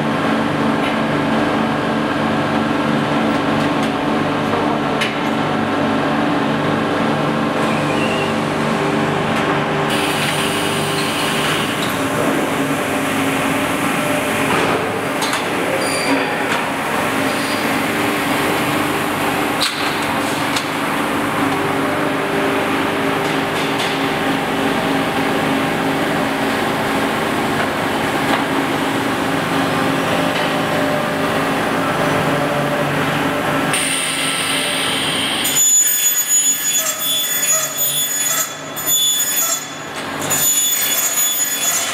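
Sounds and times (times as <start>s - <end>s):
machinery humming: 0.0s - 35.5s
saw cutting aluminium: 35.4s - 41.9s.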